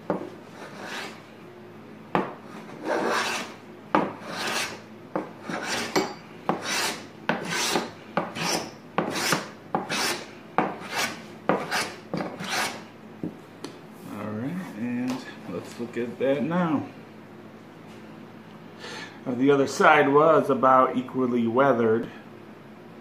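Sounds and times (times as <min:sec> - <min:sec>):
hand plane strokes on wood: 0:00.5 - 0:01.2, 0:02.4 - 0:04.8, 0:05.4 - 0:12.8.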